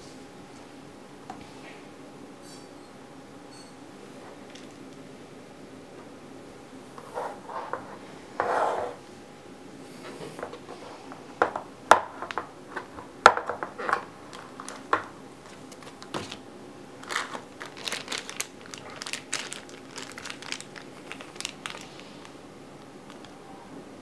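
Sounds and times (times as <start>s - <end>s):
plastic bag crinkling: 13.6s - 23.4s.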